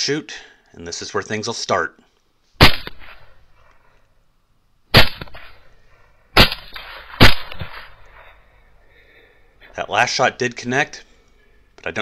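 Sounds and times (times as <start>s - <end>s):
rifle shots: 2.6s - 3.4s, 4.9s - 5.7s, 6.4s - 8.3s.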